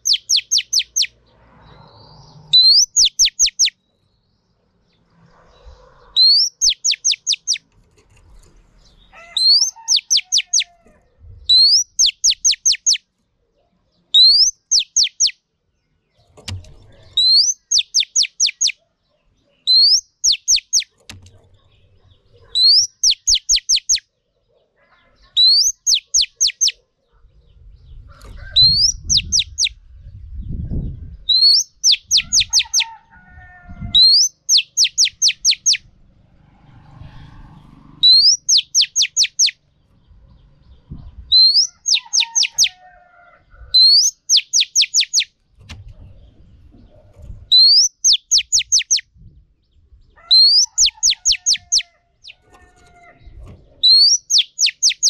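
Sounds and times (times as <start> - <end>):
bird repeating whistled call: 0.0 - 1.1, 2.6 - 3.8, 6.2 - 7.6, 9.4 - 10.7, 11.5 - 13.0, 14.2 - 15.4, 17.2 - 18.8, 19.7 - 20.9, 22.6 - 24.0, 25.4 - 26.8, 28.6 - 29.7, 31.3 - 32.9, 34.0 - 35.8, 38.0 - 39.6, 41.3 - 42.7, 43.8 - 45.3, 47.5 - 49.0, 50.4 - 51.9, 53.8 - 55.0
low rumbles and thuds: 39.8 - 41.4.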